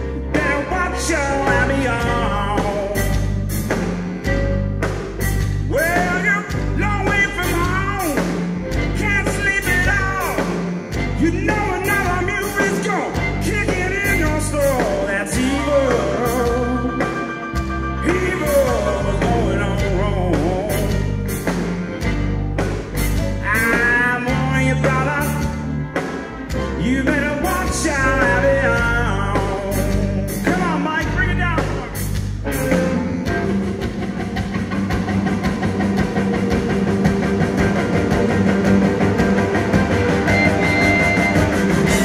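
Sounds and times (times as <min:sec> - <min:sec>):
electric blues band playing: 0:00.0 - 0:42.0
man singing: 0:00.1 - 0:03.5, 0:05.6 - 0:21.2, 0:23.4 - 0:25.7, 0:26.5 - 0:33.5.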